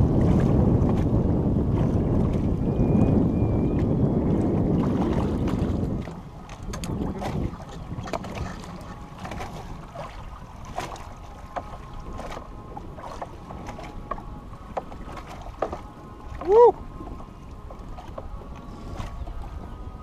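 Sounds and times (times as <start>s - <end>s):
wind and water rumble: 0.0s - 20.0s.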